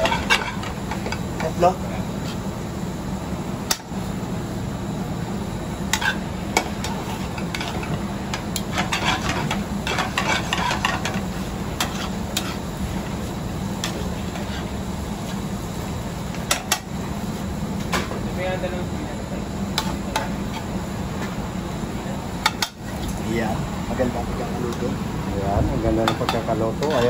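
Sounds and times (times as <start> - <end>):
steady low hum: 0.0 - 27.0
metal tongs clinking on pan: 26.0 - 27.0.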